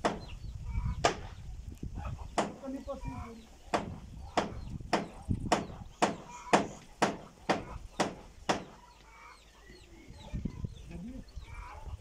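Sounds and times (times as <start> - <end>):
hammer striking roof sheet: 3.7 - 8.8
chicken clucking faintly: 8.7 - 12.0.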